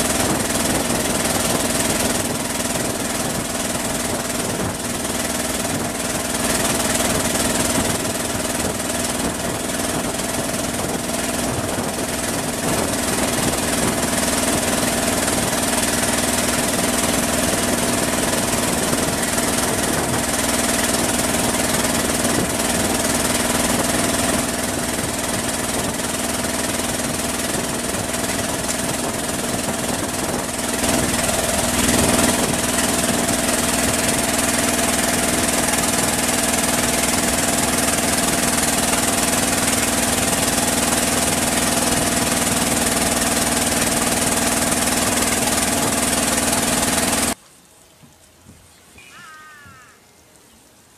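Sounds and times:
boat engine humming: 0.0 - 47.4
water rushing: 0.0 - 48.0
wind: 0.0 - 50.9.

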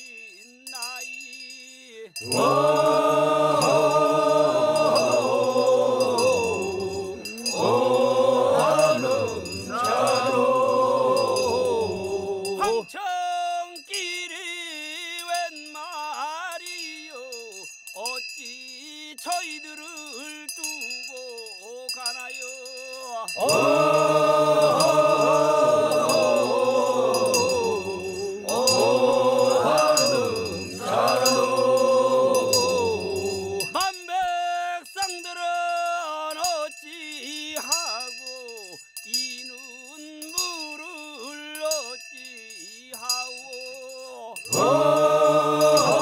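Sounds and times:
lead voice singing: 2.1 - 13.1, 23.0 - 33.9, 44.5 - 46.0
men's chorus chanting: 2.2 - 13.0, 23.0 - 33.8, 44.4 - 46.0.

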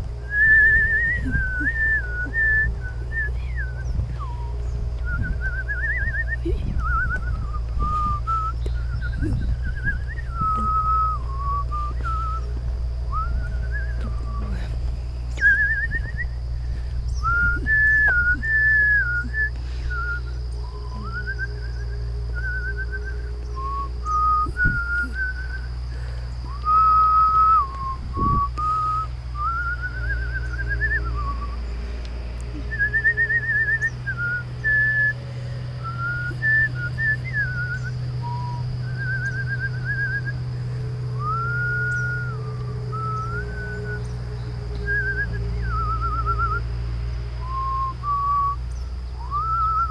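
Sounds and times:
steady low rumble: 0.0 - 49.9
person whistling a slow tune: 0.2 - 49.9.

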